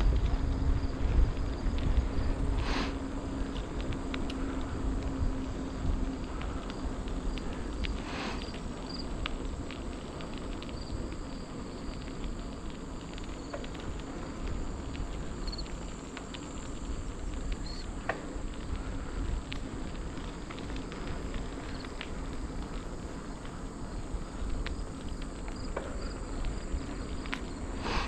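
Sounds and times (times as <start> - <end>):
high insect drone: 0.0 - 28.0
small ticks and crackles: 0.0 - 28.0
wind rumble on microphone: 0.0 - 28.0.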